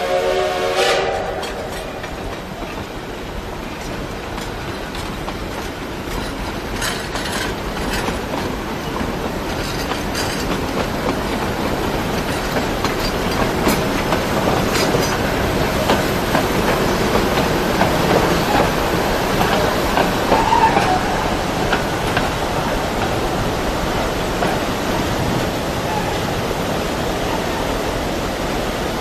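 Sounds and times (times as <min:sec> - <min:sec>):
train wheels clicking on track: 0:00.0 - 0:29.0.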